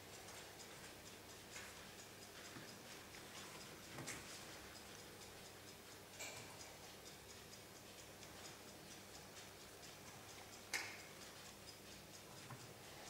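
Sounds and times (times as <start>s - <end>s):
faint rapid clock ticking: 0.0s - 13.0s.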